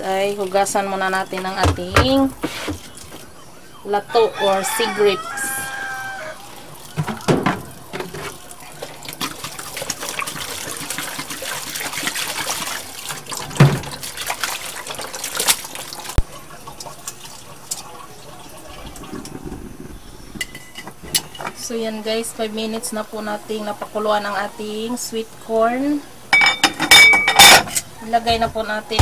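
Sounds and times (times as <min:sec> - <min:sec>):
tap water splashing into basin: 0:06.8 - 0:17.8.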